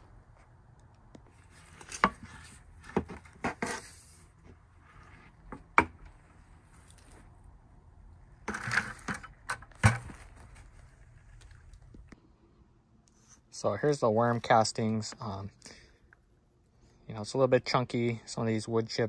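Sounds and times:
shovel knocking and scraping: 0:01.5 - 0:04.2, 0:08.4 - 0:10.7.

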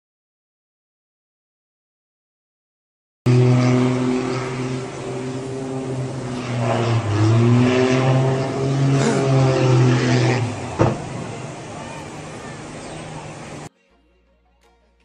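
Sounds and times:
propeller plane engine: 0:03.3 - 0:13.7.

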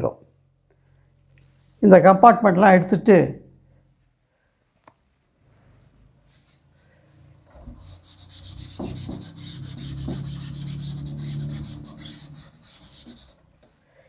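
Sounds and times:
duster scrubbing on chalkboard: 0:07.5 - 0:13.6.

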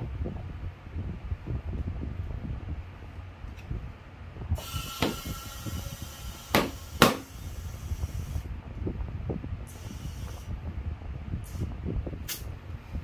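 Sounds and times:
compressed air hissing into tyre: 0:04.6 - 0:08.5, 0:09.6 - 0:10.6, 0:11.4 - 0:12.5.

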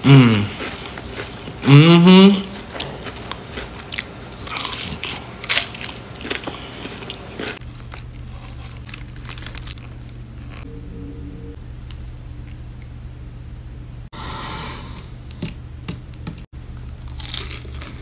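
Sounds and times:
crunchy chewing: 0:02.4 - 0:10.7, 0:16.8 - 0:18.0
low hum: 0:07.9 - 0:14.1.

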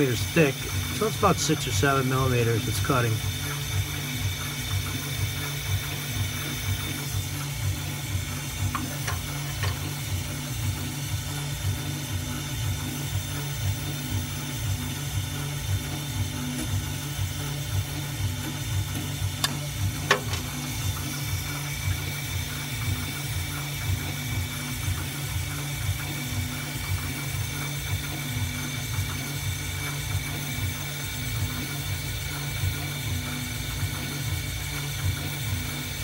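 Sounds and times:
milling machine spindle whining: 0:00.0 - 0:36.0.

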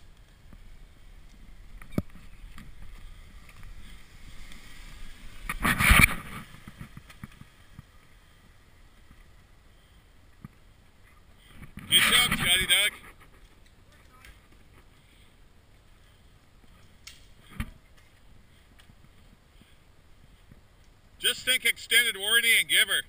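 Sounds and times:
off-road vehicle engine rumbling: 0:00.0 - 0:23.0.

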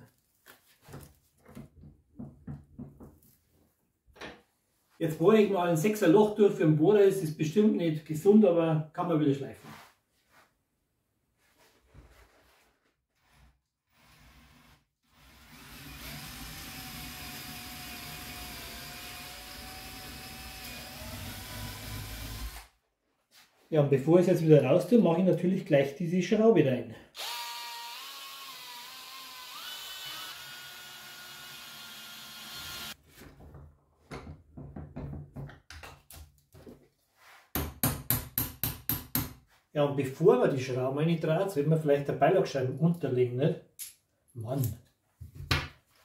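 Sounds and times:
cordless drill whining: 0:15.1 - 0:22.7, 0:27.2 - 0:33.0
small hammer tapping: 0:37.6 - 0:39.4.

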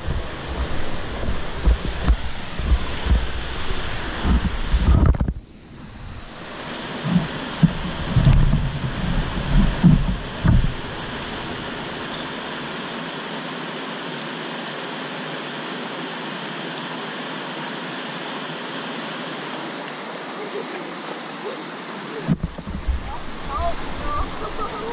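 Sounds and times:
low rumbling thumps: 0:00.0 - 0:06.3, 0:07.0 - 0:12.1, 0:22.3 - 0:24.4
creek water over rocks: 0:00.0 - 0:24.9.

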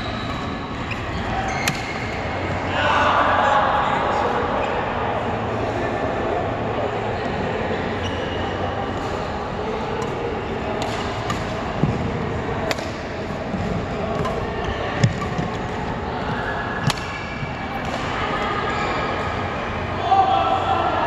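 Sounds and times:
hall background noise: 0:00.0 - 0:21.0
racket hitting shuttlecock: 0:10.8 - 0:12.0, 0:12.6 - 0:13.1, 0:16.8 - 0:18.1.

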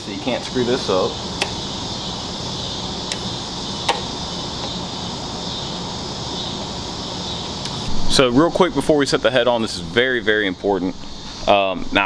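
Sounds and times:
insect buzz: 0:00.3 - 0:12.0.

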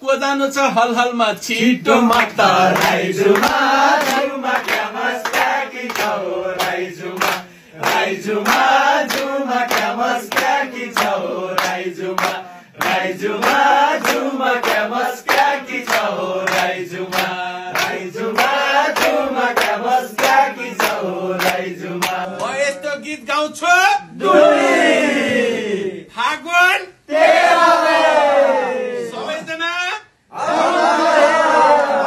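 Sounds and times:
men singing in chorus: 0:01.3 - 0:22.4
hand claps: 0:02.1 - 0:22.6.

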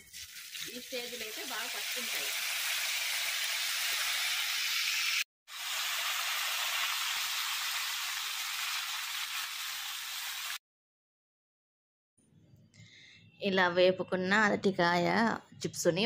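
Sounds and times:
banana slices sizzling in oil: 0:00.0 - 0:10.6.

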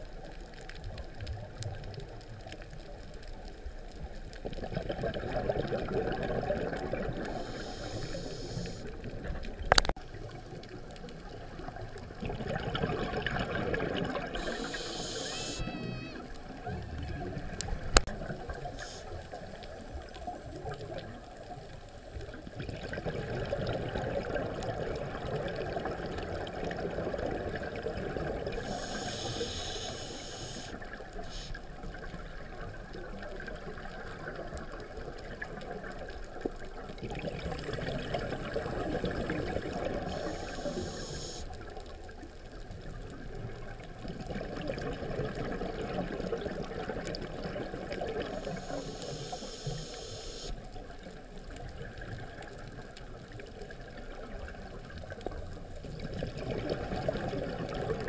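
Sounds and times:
muffled underwater rushing: 0:00.0 - 0:58.0
scuba regulator breath hiss: 0:07.2 - 0:09.0, 0:14.3 - 0:15.8, 0:18.6 - 0:19.4, 0:28.5 - 0:31.7, 0:39.9 - 0:41.6, 0:48.3 - 0:50.7.

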